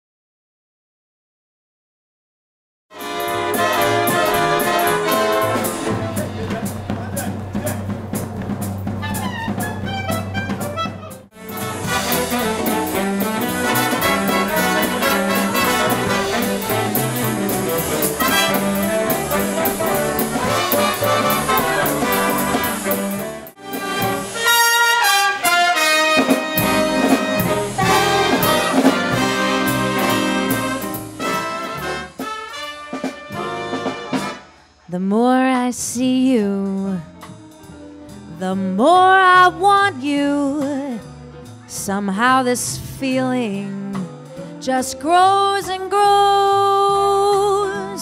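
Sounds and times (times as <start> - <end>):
trumpets and trombones: 2.9 - 7.8, 9.0 - 34.8
big band playing swing: 2.9 - 34.8, 35.5 - 48.0
drum-kit cymbals: 3.0 - 34.8.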